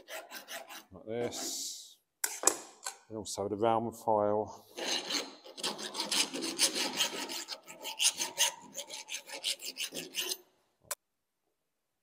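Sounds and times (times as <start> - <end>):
hand file rasping on steel pipe: 0.0 - 1.0, 4.8 - 10.5.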